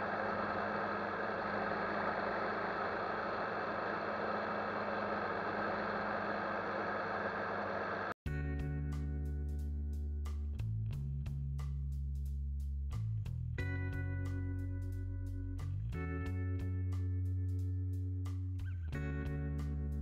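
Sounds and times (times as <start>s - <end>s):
wind and road noise: 0.0s - 8.2s
guitar music: 8.3s - 11.2s, 13.6s - 20.0s.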